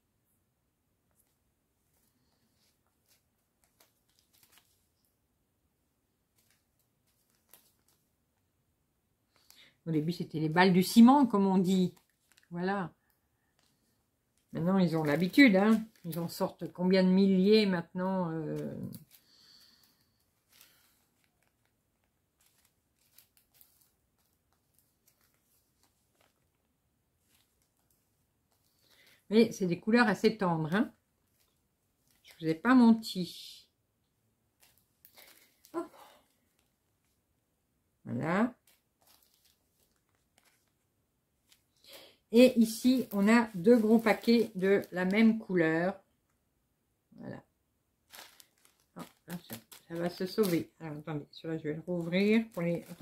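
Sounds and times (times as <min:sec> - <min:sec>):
plastic bags rustling and clicking: 0:01.2 - 0:05.1, 0:06.3 - 0:08.1, 0:09.3 - 0:12.6, 0:13.4 - 0:16.8, 0:18.4 - 0:29.3, 0:30.6 - 0:32.6, 0:34.5 - 0:37.1, 0:38.6 - 0:40.8, 0:41.4 - 0:45.5, 0:48.1 - 0:50.9, 0:51.8 - 0:53.0
zip bag rustling: 0:42.4 - 0:45.1.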